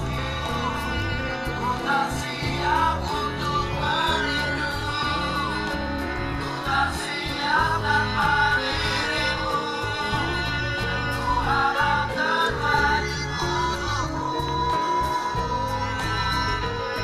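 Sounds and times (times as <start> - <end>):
song with instrumental backing: 0.0 - 17.0.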